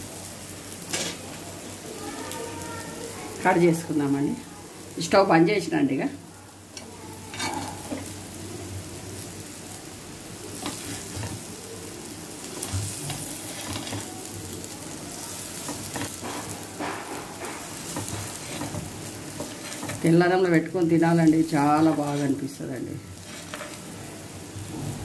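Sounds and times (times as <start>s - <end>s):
oil sizzling: 0.0s - 25.0s.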